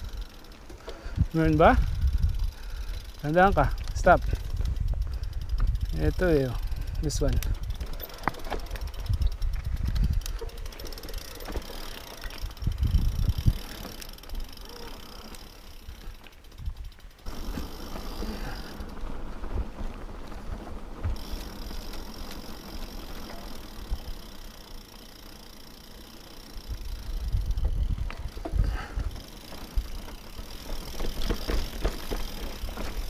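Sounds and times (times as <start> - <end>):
bike tyre and trail noise: 0.0 - 33.0
wind buffeting microphone: 1.0 - 11.2, 12.2 - 14.6, 15.8 - 17.1, 26.6 - 33.0
bike knocks and rattles: 7.3 - 33.0.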